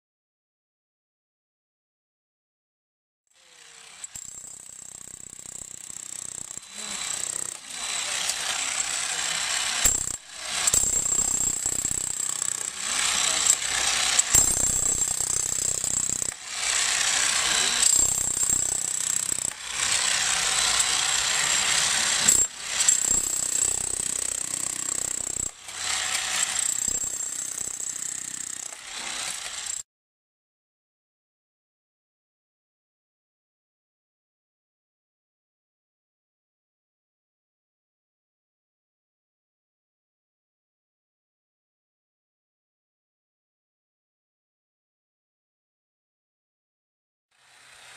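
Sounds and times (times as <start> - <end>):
demolition hammer chiseling ground: 3.4 - 29.8, 47.4 - 47.9.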